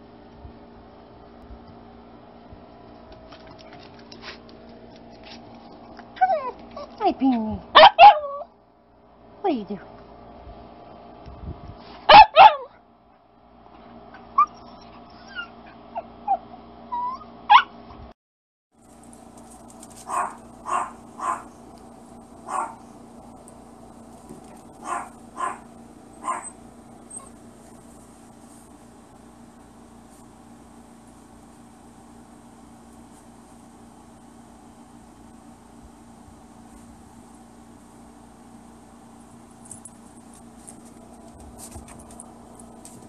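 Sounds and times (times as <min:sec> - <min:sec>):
low household hum: 0:00.0 - 0:18.1, 0:18.8 - 0:43.0
puppy barking: 0:07.8 - 0:08.5, 0:12.1 - 0:12.8, 0:17.1 - 0:17.7, 0:20.0 - 0:21.6, 0:22.4 - 0:22.9, 0:24.5 - 0:27.4.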